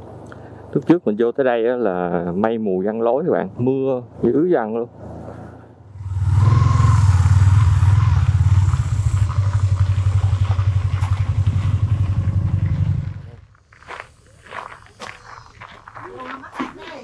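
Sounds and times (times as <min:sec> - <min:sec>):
motorcycle engine running: 0:05.9 - 0:13.5.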